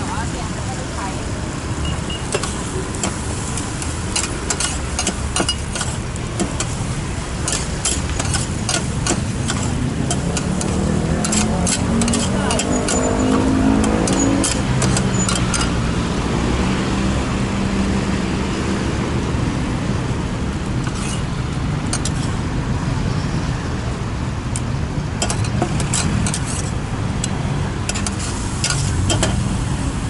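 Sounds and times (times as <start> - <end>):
street traffic noise: 0.0 - 30.0
metal spatula scraping a pan: 4.2 - 6.0, 7.4 - 15.6, 20.9 - 21.3, 22.0 - 22.4, 25.3 - 26.7.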